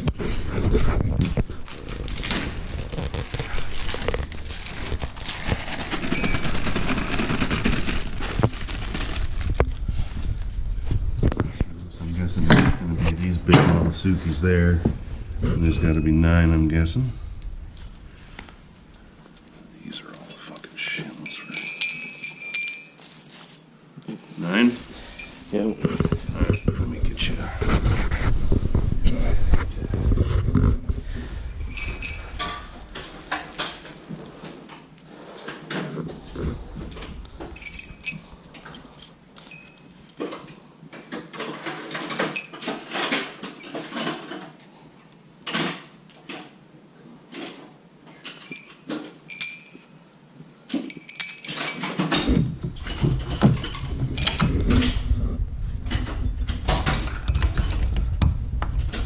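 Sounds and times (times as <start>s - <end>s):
low rumble of handling: 0.0s - 22.0s, 24.6s - 35.1s, 35.8s - 40.2s, 52.2s - 59.0s
metal washers clinking: 5.1s - 9.7s, 10.4s - 11.4s, 13.0s - 23.8s, 24.5s - 27.0s, 31.5s - 35.8s, 36.6s - 40.5s, 41.4s - 44.4s, 46.1s - 46.5s, 48.2s - 50.0s, 50.7s - 55.1s, 55.8s - 59.0s.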